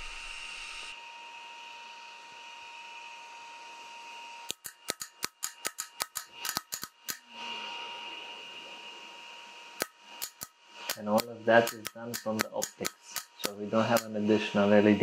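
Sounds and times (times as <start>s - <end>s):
faint steady whine: 5.5s - 15.0s.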